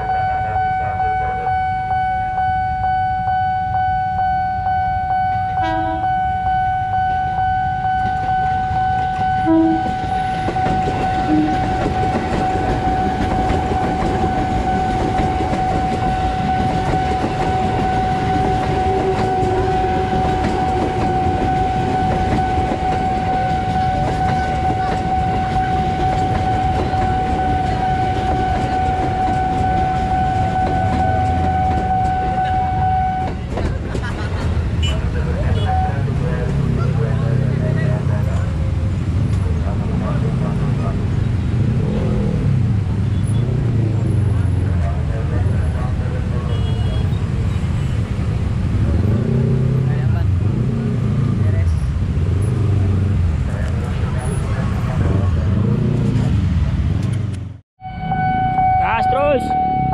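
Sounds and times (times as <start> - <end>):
high warning tone: 0.0 - 33.5, 57.8 - 59.9
train horn toots: 0.0 - 33.6, 46.4 - 48.1, 57.8 - 59.9
train wheels rumbling and clattering: 7.9 - 57.6.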